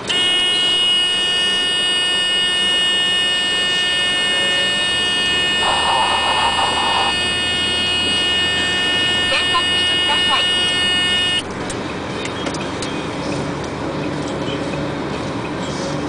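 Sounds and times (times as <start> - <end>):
high-pitched buzzing tone: 0.1 - 11.5.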